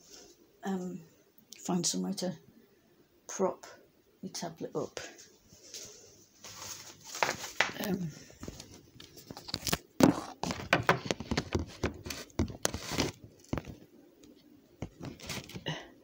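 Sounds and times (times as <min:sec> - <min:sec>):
tablet handling knocks and rustles: 0:08.4 - 0:13.8, 0:14.8 - 0:15.7.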